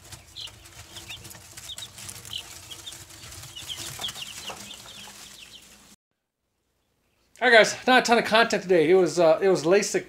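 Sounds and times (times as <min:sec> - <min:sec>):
chicks peeping: 0:00.0 - 0:06.0.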